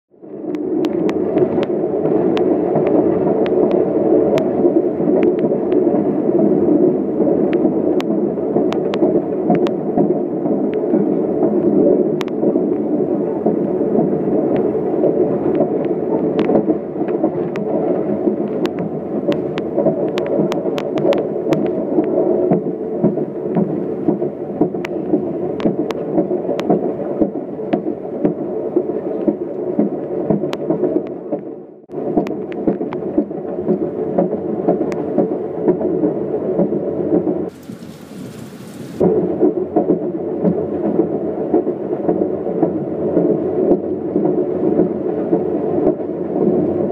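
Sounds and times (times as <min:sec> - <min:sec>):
train rumble: 0:31.9 - 0:46.8
wheels clacking on rails: 0:37.2 - 0:39.0
thin hiss: 0:37.5 - 0:39.0.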